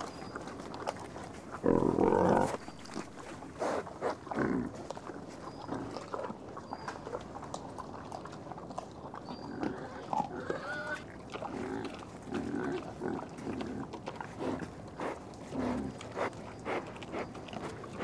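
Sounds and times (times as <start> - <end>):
boars crunching and snuffling: 0.0 - 18.0
boars grunting: 1.6 - 4.8, 9.4 - 18.0.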